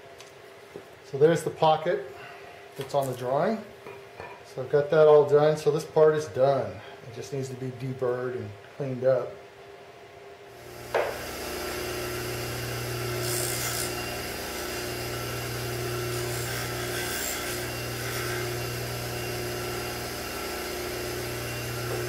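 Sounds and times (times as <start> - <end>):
bench grinder motor running: 10.6 - 22.0
metal rubbing on grinding wheel: 13.2 - 14.0, 16.1 - 18.6.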